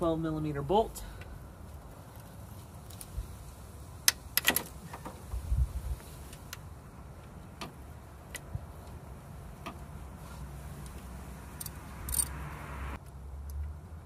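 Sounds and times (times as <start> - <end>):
ratchet clicking: 11.6 - 12.4.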